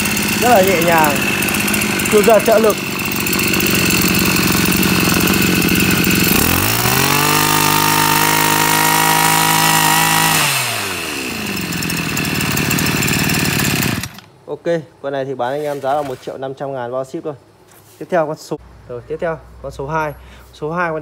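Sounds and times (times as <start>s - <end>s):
brush cutter engine revving: 0.0s - 14.3s.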